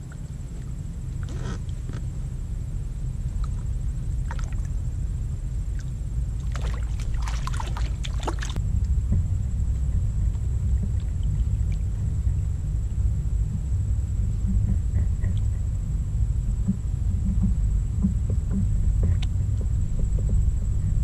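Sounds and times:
low steady rumble: 0:00.0 - 0:21.0
water splashing and dripping: 0:03.4 - 0:04.7, 0:05.7 - 0:09.3.

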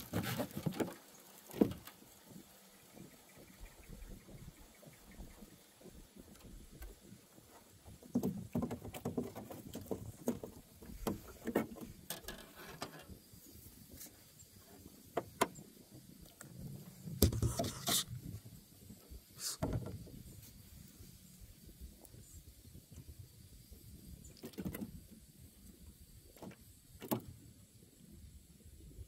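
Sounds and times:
fishing gear knocks and scrapes: 0:00.0 - 0:01.9, 0:17.1 - 0:18.2.

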